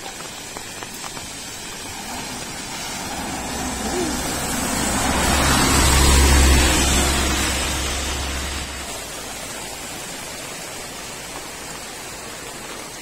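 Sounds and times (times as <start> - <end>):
tyres swishing on wet road: 0.0 - 13.0
bus engine drone: 1.5 - 10.0.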